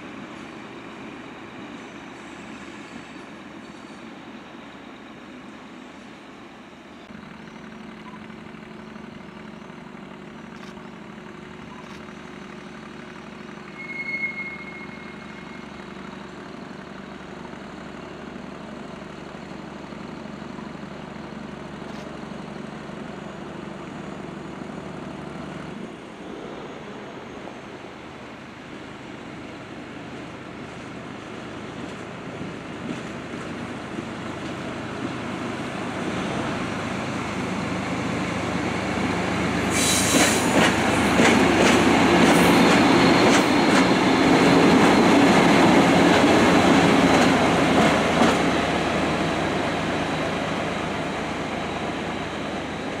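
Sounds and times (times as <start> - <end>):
diesel locomotive engine running: 0.0 - 53.0
high squeal: 13.5 - 16.3, 42.3 - 45.8.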